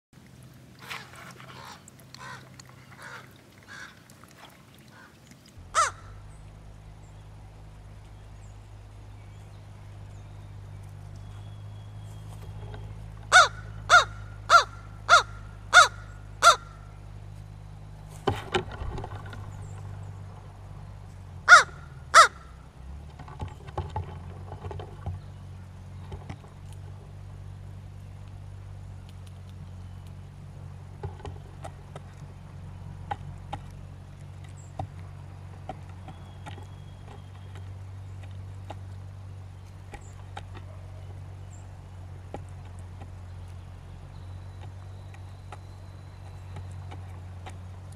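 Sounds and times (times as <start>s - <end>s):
steady low hum: 0.2s - 47.9s
crow cawing: 1.6s - 4.0s, 4.9s - 6.2s, 13.3s - 16.9s, 21.4s - 22.5s
bird bill tapping on wood: 44.2s - 47.7s.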